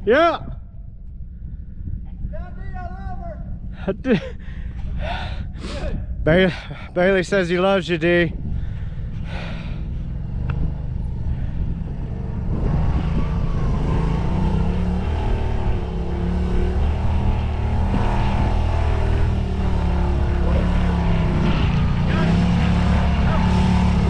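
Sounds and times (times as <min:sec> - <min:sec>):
utility vehicle engine revving: 0:08.5 - 0:24.0.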